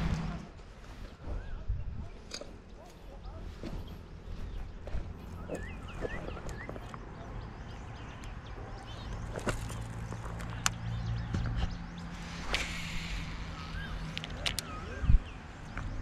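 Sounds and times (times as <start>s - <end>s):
birds chirping: 0.7s - 16.0s
brief rush of noise: 12.2s - 13.9s.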